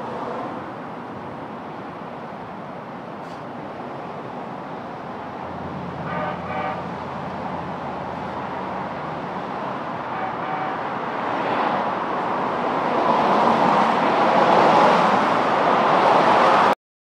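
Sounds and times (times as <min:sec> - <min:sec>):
light rail train rumbling hiss: 0:01.6 - 0:10.7.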